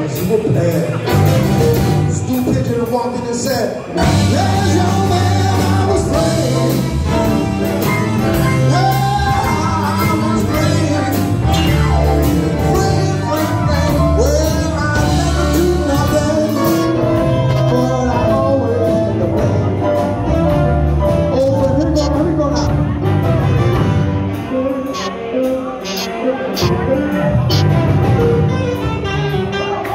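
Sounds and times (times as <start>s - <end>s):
big band dance music: 0.0s - 29.9s
trombone: 4.0s - 29.9s
congas: 21.1s - 29.9s
saxophones: 23.2s - 29.9s.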